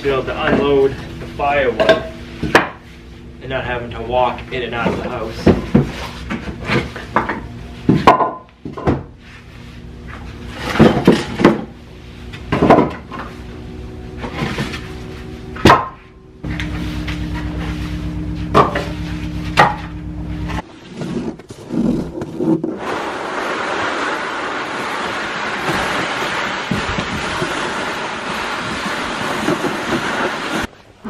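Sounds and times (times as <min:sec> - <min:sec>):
steady low hum: 0:00.0 - 0:23.3
plastic sled dragged over snow: 0:20.6 - 0:30.7.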